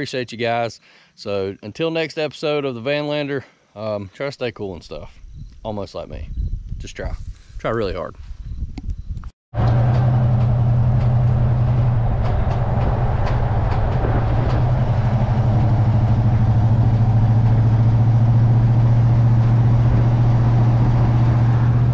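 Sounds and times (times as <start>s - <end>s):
road and tyre noise: 9.6s - 21.9s
van engine drone: 9.6s - 21.9s.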